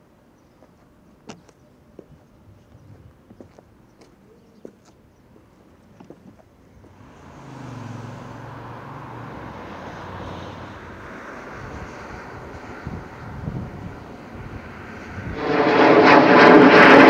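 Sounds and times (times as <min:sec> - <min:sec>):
passing vehicle engine: 0:06.8 - 0:17.0.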